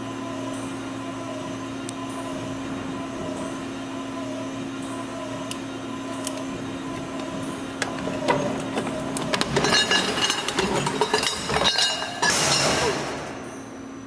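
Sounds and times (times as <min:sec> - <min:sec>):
metallic clattering and rattling: 0:08.3 - 0:13.4.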